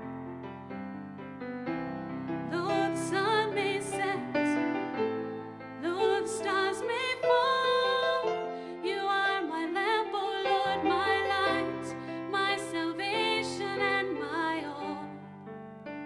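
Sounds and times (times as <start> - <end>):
slow song with piano: 0.0 - 16.0
person singing with vibrato: 2.5 - 4.8, 5.8 - 15.2.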